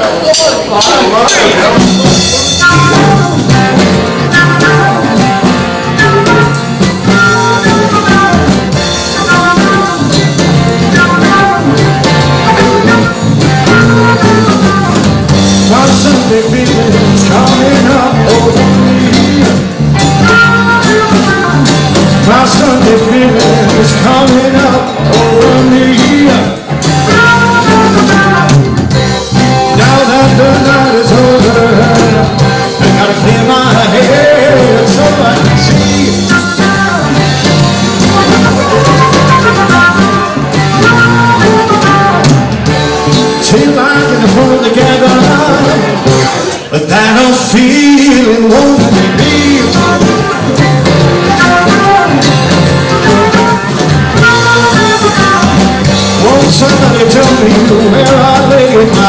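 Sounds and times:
live blues-rock band: 0:00.0 - 0:59.0
person singing: 0:00.0 - 0:59.0
harmonica: 0:02.1 - 0:44.7
flute: 0:02.4 - 0:15.1, 0:20.0 - 0:26.4, 0:29.7 - 0:42.9, 0:49.2 - 0:59.0.

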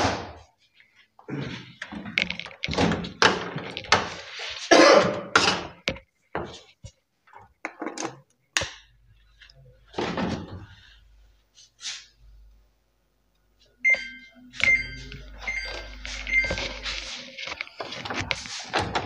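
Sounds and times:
short high beeps: 0:13.8 - 0:16.8.

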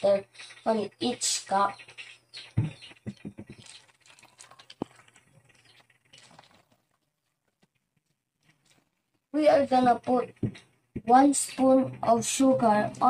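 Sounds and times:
plastic pitcher and cups clattering: 0:02.6 - 0:07.7
water pouring into plastic cups: 0:03.2 - 0:07.1.

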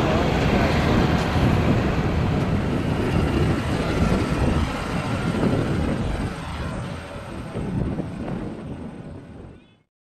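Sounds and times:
propeller plane engine drone: 0:00.0 - 0:09.8.

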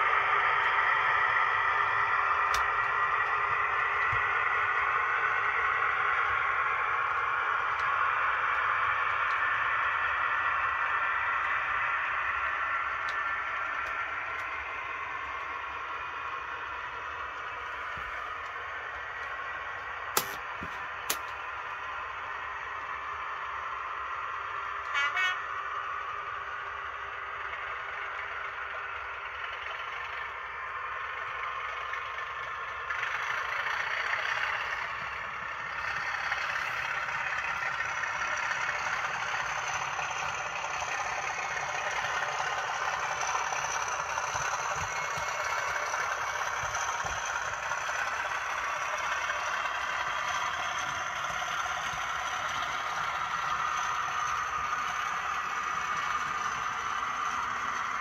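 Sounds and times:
model train rolling on track: 0:00.0 - 0:58.0
model train horn toot: 0:24.8 - 0:25.5.

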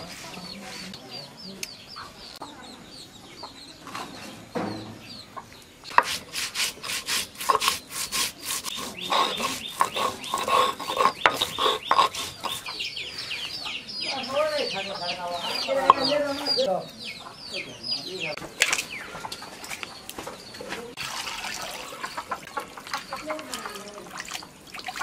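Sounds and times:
chickens clucking: 0:00.1 - 0:06.2, 0:06.8 - 0:21.0, 0:21.6 - 0:24.6
grinding stone rasping: 0:06.0 - 0:12.8.

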